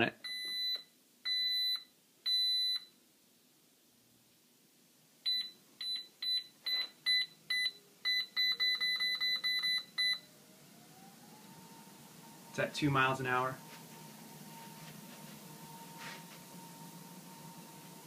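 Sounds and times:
treadmill console beeping: 0:00.2 - 0:02.9, 0:05.2 - 0:12.6, 0:13.6 - 0:18.0
treadmill motor whine: 0:05.3 - 0:18.0.

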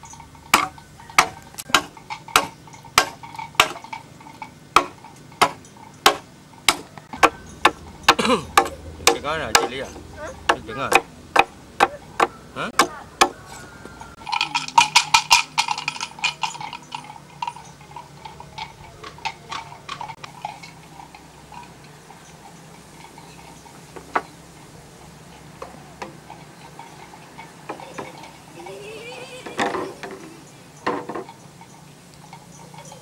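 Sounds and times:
sharp knocks and clicks: 0:00.1 - 0:13.4.

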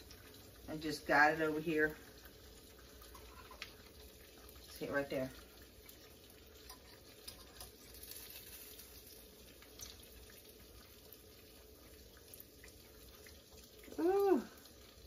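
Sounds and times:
oil sizzling in a skillet: 0:00.0 - 0:15.0
person exclaiming: 0:13.9 - 0:14.6.

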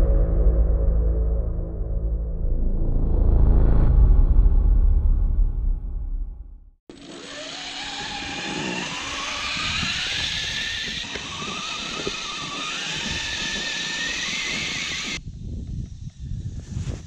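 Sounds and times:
electric motors whining: 0:06.9 - 0:15.2.

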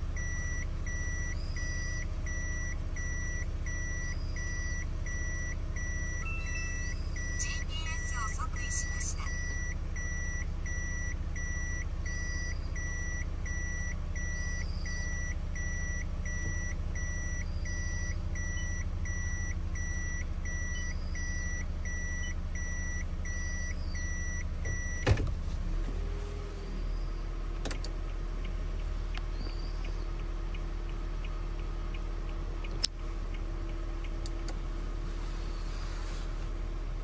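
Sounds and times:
car engine idling: 0:00.0 - 0:37.0
reverse warning buzzer beeping: 0:00.2 - 0:25.1.

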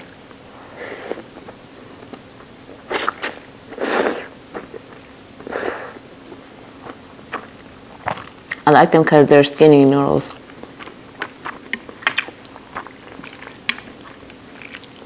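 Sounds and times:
person slurping noodles: 0:00.6 - 0:01.3, 0:02.9 - 0:06.0.

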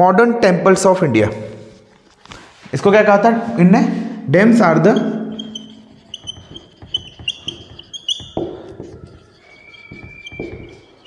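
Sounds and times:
marker squeaking on whiteboard: 0:04.6 - 0:11.0.

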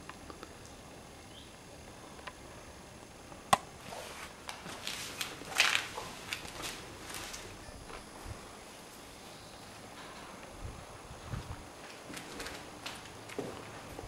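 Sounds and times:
footsteps crunching over rubble: 0:04.5 - 0:08.5, 0:11.2 - 0:14.0.

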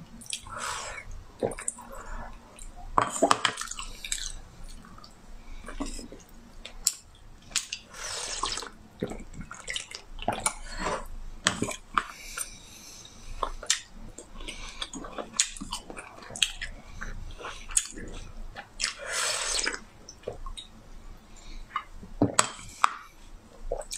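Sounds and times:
lip smacks and clicks: 0:00.2 - 0:00.5
squelchy chewing and slurping: 0:00.2 - 0:12.5.

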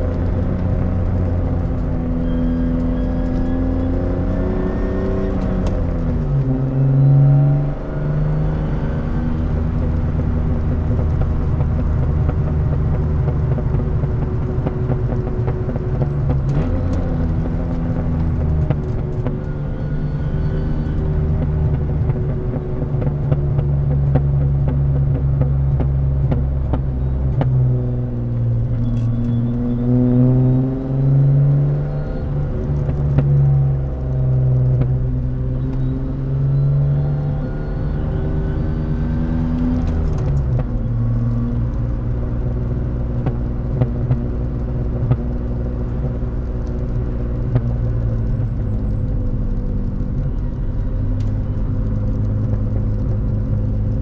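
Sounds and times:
car engine with loud exhaust: 0:00.0 - 0:54.0
road rumble: 0:00.0 - 0:54.0
exhaust pops: 0:39.8 - 0:54.0.

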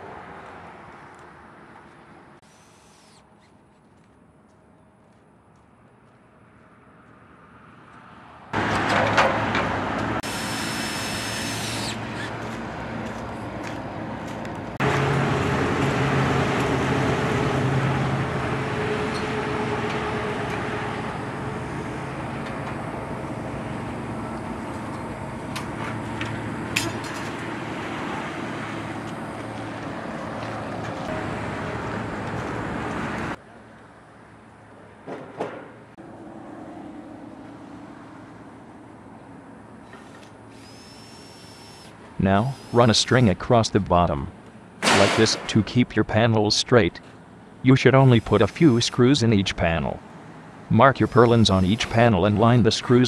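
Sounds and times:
engine humming: 0:07.8 - 0:42.8.

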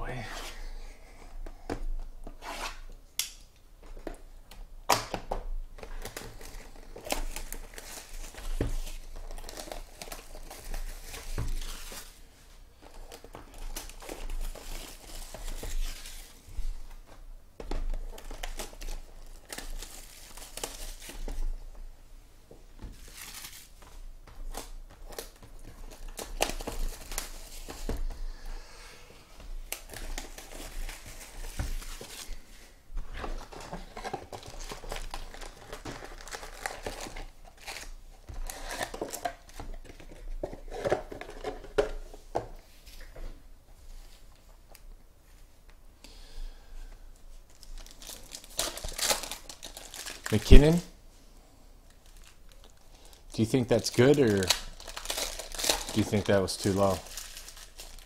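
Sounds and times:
plastic wrap tearing and crinkling: 0:05.8 - 0:12.3, 0:13.0 - 0:16.5, 0:18.0 - 0:21.6, 0:23.0 - 0:28.0, 0:29.6 - 0:32.5, 0:33.4 - 0:41.4, 0:47.5 - 0:50.8, 0:51.9 - 0:58.0.

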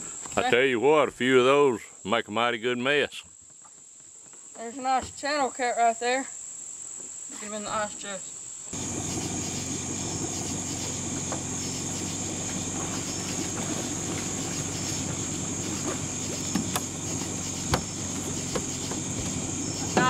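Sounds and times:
night insects chorus: 0:00.0 - 0:20.0
low mechanical hum: 0:08.7 - 0:20.0
sharp knocks: 0:12.5 - 0:20.0.

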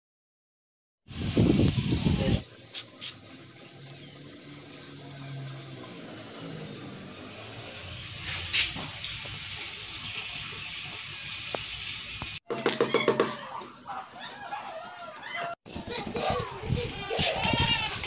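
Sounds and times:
running water hissing: 0:01.1 - 0:12.4.

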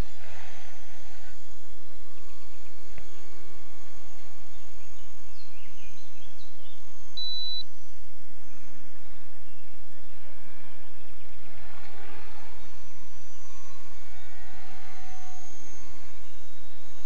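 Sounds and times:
outdoor background hiss: 0:00.0 - 0:17.0
faint high chirps: 0:01.0 - 0:10.0
high-pitched beep: 0:07.2 - 0:07.6.

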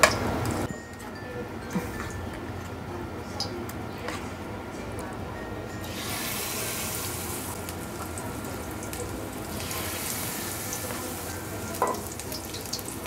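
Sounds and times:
oil sizzling in a frying pan: 0:05.8 - 0:13.0.

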